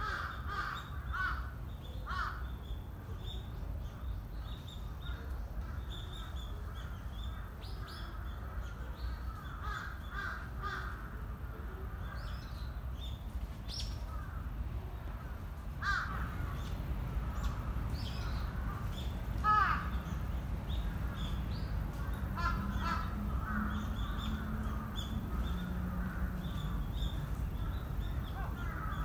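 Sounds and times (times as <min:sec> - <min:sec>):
crows cawing: 0:00.0 - 0:02.5, 0:09.2 - 0:12.4, 0:14.0 - 0:14.6, 0:15.2 - 0:16.7, 0:18.3 - 0:20.2, 0:20.8 - 0:29.0.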